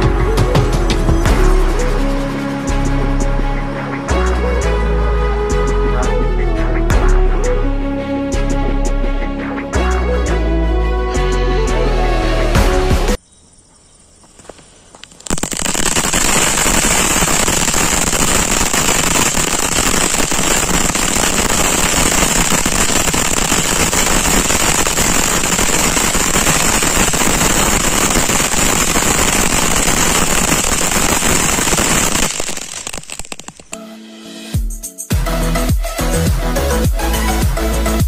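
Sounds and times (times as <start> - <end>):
burning fuse: 14.3 - 33.9
crackling firework fountain: 14.4 - 33.8.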